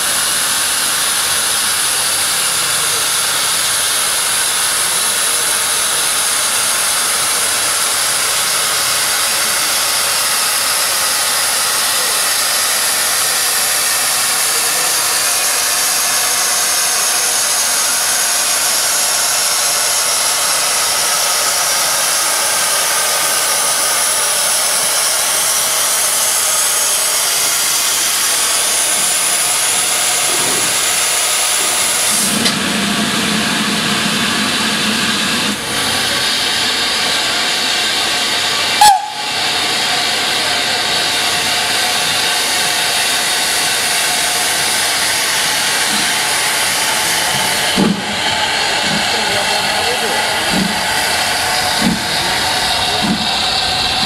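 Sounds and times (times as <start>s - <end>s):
steam hissing loudly: 0.0s - 54.0s.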